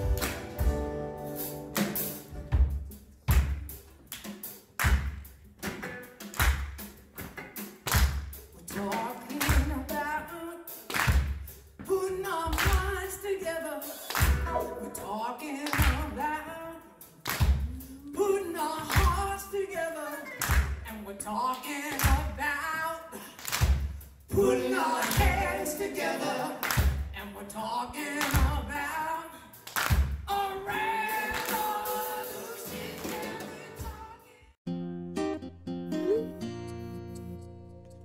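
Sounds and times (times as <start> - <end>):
acoustic guitars: 0.0 - 2.9, 11.8 - 16.6, 24.3 - 27.2, 30.7 - 38.0
drums: 0.0 - 34.3
person singing into a microphone: 8.6 - 10.8, 11.8 - 17.0, 17.6 - 23.3, 24.3 - 26.6, 30.3 - 34.5
heavy drum hit on the beat: 17.4 - 18.3.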